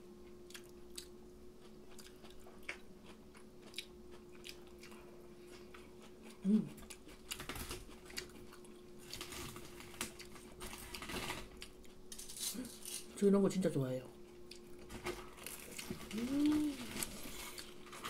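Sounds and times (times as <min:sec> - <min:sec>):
close-miked chewing: 0:00.2 - 0:11.0, 0:14.2 - 0:18.0
person humming: 0:06.4 - 0:06.8, 0:16.0 - 0:17.2.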